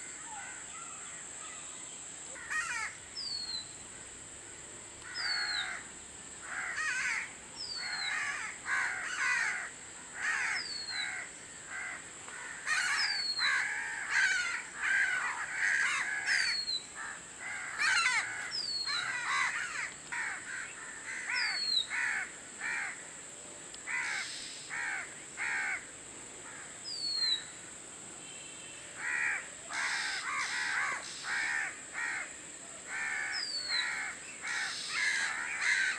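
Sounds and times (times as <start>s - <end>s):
bird singing scratchy notes: 29.9s - 31.5s, 33.4s - 35.2s.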